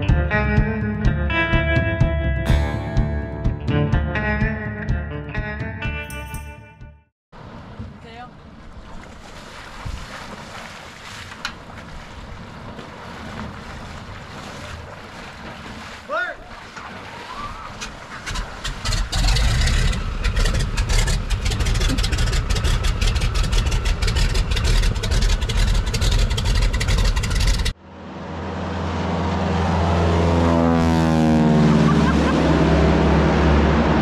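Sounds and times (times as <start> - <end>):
engine running steadily: 17.8 - 34.0.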